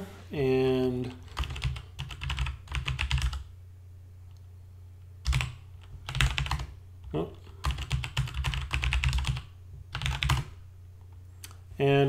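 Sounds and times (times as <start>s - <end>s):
typing on computer keyboard: 1.2s - 3.4s, 5.2s - 6.7s, 7.6s - 10.5s.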